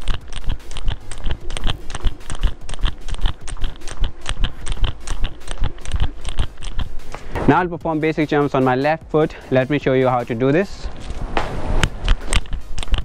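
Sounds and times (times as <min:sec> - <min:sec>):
skipping rope slapping paving: 0:00.0 - 0:07.2.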